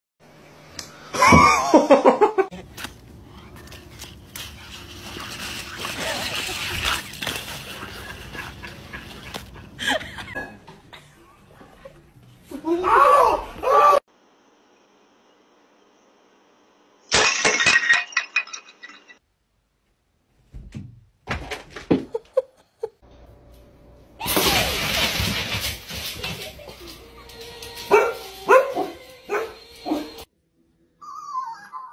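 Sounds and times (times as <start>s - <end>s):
person laughing: 1.2s - 2.6s, 6.0s - 11.1s, 22.0s - 23.0s
pieces breaking and clattering: 17.1s - 19.2s, 24.2s - 26.6s
plant stand crashing over: 24.2s - 26.6s
dogs barking loudly: 27.9s - 30.2s.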